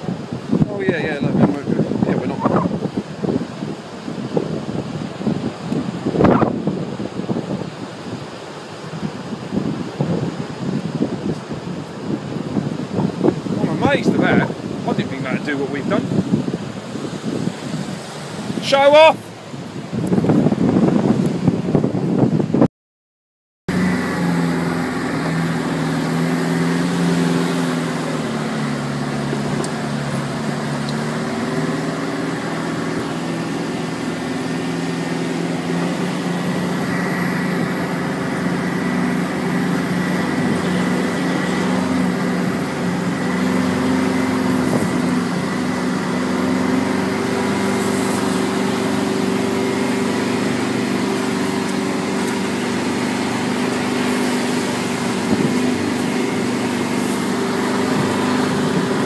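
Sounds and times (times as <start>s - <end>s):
vehicle engine running: 23.7s - 59.0s.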